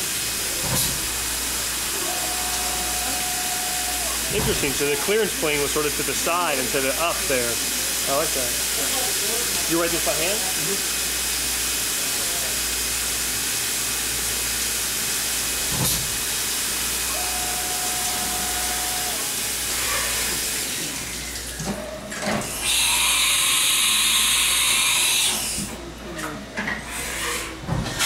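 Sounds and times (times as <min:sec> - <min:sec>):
coolant spray hiss: 0:00.0 - 0:21.5.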